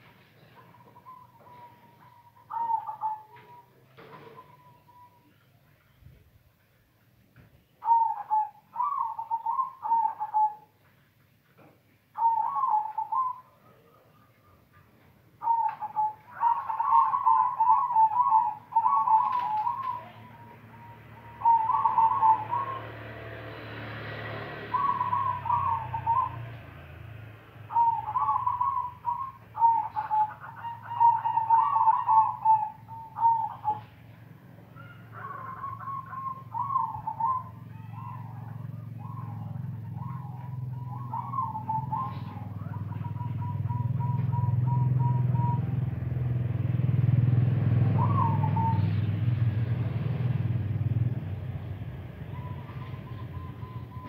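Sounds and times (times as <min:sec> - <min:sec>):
dove cooing: 0:00.0 - 0:05.6, 0:07.8 - 0:10.8, 0:12.2 - 0:54.0.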